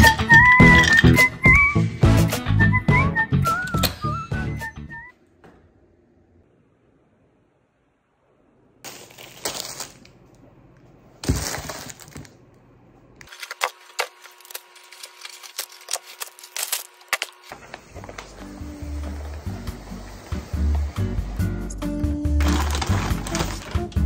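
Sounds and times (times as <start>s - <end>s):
plastic packaging rustling: 8.9s - 10.3s, 11.2s - 12.4s, 13.2s - 18.6s, 22.4s - 24.0s
plastic wrappers crackling: 8.9s - 10.3s, 11.2s - 12.4s, 13.2s - 19.1s, 22.3s - 24.0s.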